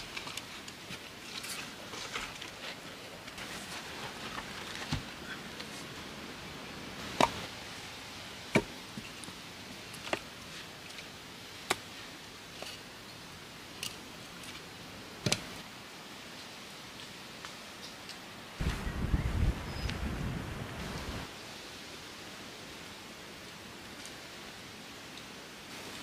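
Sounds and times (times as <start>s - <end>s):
faint hiss: 0.0s - 26.0s
wood being chopped: 8.5s - 8.8s.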